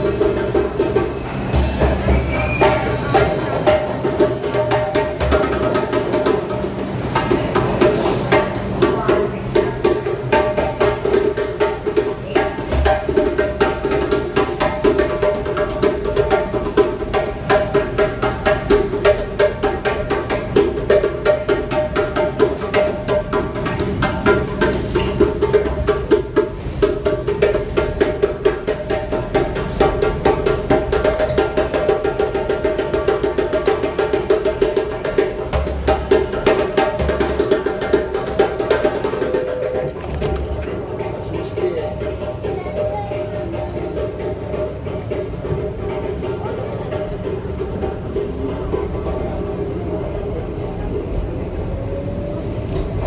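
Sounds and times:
hand drum rhythm: 0.0s - 49.2s.

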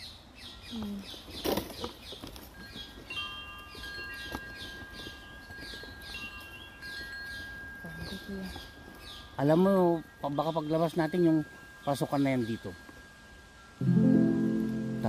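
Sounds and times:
bird chirping: 0.0s - 9.7s
high ringing tones: 3.1s - 15.0s.

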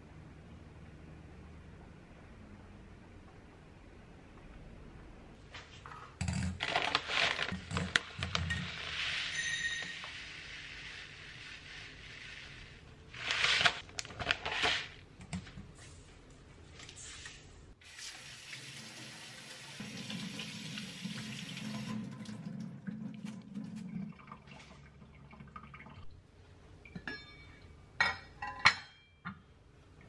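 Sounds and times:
tap water running into sink: 17.9s - 24.5s.

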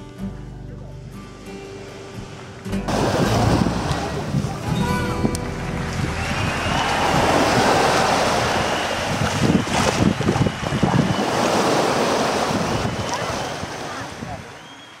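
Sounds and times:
small waves breaking on beach: 1.6s - 4.7s, 6.6s - 15.0s
wind buffeting microphone: 2.9s - 14.6s.

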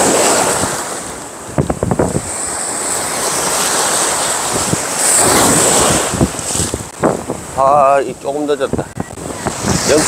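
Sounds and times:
wind buffeting microphone: 0.0s - 3.7s, 4.4s - 10.0s
waves breaking on beach: 0.0s - 10.0s.

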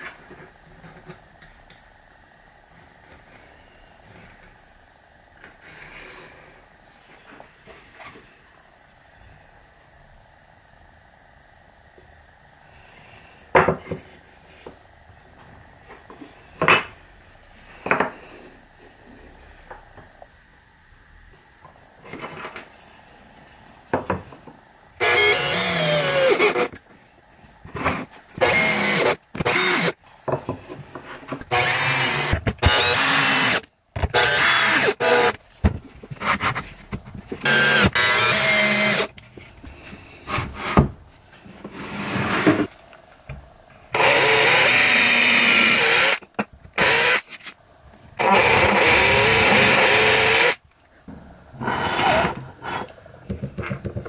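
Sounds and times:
power drill driving screws: 25.0s - 26.7s, 28.4s - 30.0s, 31.5s - 35.4s, 37.4s - 39.1s, 44.0s - 46.2s, 46.8s - 47.2s, 48.2s - 50.6s.

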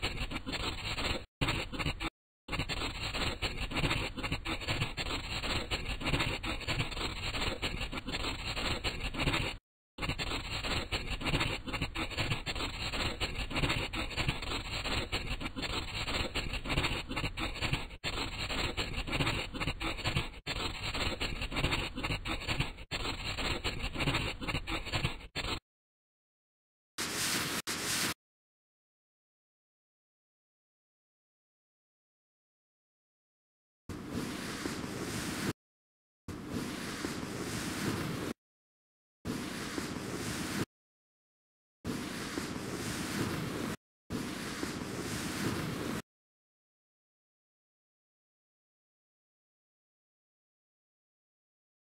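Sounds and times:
drawing tool scratching on paper: 0.0s - 25.6s, 33.9s - 35.6s, 36.6s - 38.4s, 39.3s - 40.7s, 41.9s - 46.0s.

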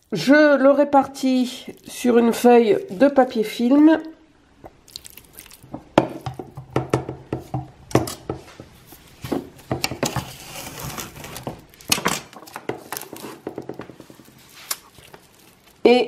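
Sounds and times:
cling film crinkling: 14.2s - 15.9s.

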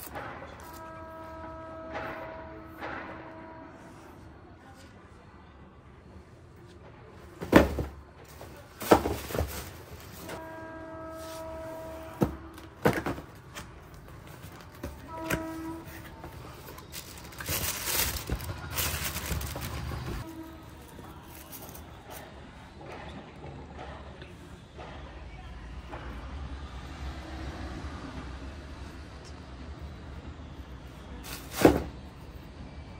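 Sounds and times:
horn sounding: 0.6s - 4.3s, 10.2s - 13.3s, 14.5s - 21.2s
cardboard box knocks and thumps: 7.4s - 8.0s, 8.8s - 9.8s, 12.2s - 13.4s
tissue paper crinkling: 16.3s - 20.2s.

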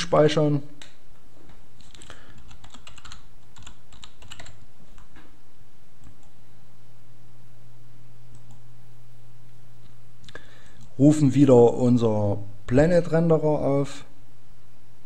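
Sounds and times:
low steady hum: 0.0s - 15.0s
computer keyboard typing: 1.8s - 5.2s.

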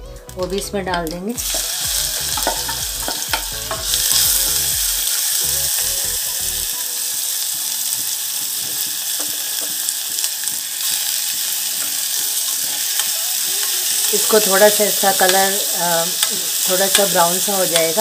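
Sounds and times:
onion sizzling in pan: 0.3s - 18.0s.

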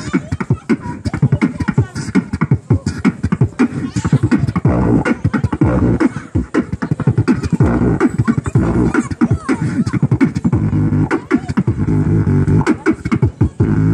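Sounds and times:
beatboxing into microphone: 0.0s - 13.9s
low hummed bass tone: 7.6s - 8.9s.

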